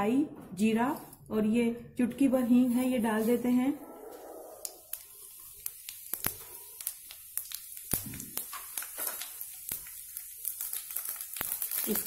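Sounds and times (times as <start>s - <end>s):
faint sizzle: 2.4s - 12.0s
seeds crackling in hot oil: 4.5s - 12.0s.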